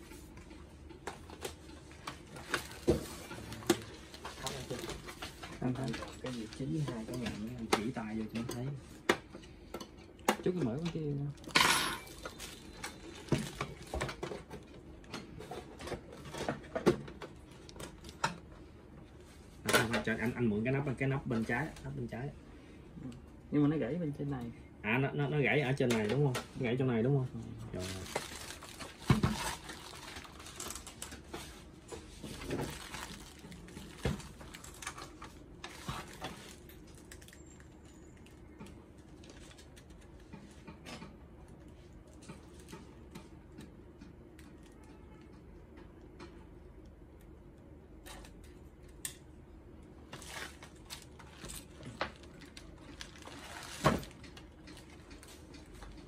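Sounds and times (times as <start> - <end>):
plastic wrap rustling: 1.2 - 8.4, 26.6 - 40.3, 50.0 - 56.0.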